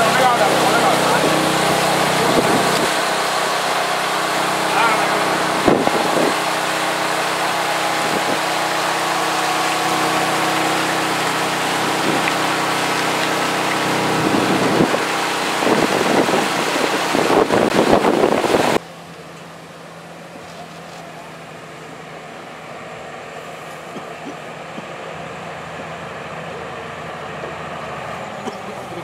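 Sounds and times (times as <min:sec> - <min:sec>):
water splashing against steel: 0:00.0 - 0:18.8
vehicle engine idling: 0:00.0 - 0:29.0.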